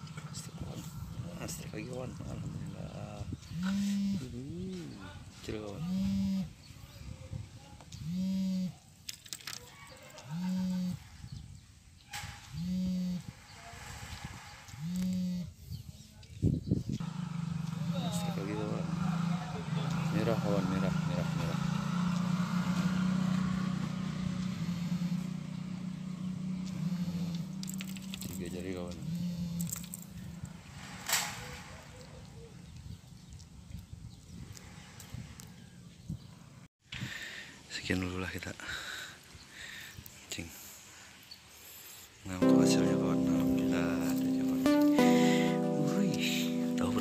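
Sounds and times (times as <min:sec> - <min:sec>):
low animal call: 0:10.2 - 0:11.1
small engine humming: 0:17.0 - 0:28.3.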